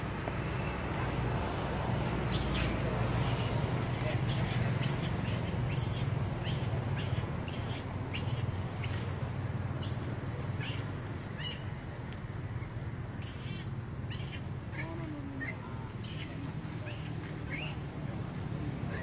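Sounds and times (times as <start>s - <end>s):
steady low rumble: 0.0s - 13.2s
small bird chirping: 2.2s - 9.2s, 9.8s - 11.7s, 12.6s - 17.8s.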